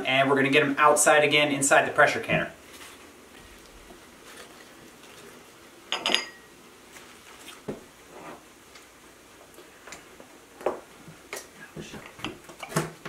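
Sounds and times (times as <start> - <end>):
glass jars clinking: 5.9 - 6.5.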